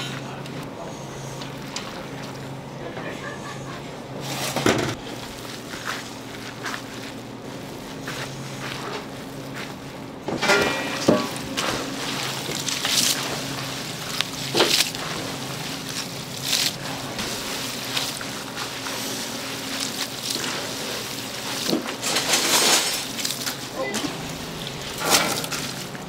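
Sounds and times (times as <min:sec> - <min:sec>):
steady low hum: 0:00.0 - 0:26.0
kitchen clatter and handling: 0:01.4 - 0:05.2, 0:10.3 - 0:26.0.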